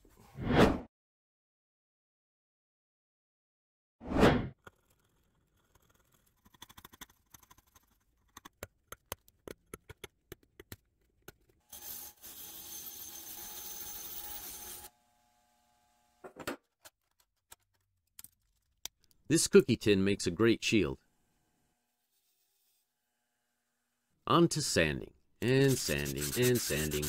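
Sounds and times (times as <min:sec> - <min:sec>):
hand scraper scraping metal: 0:25.4 - 0:27.0.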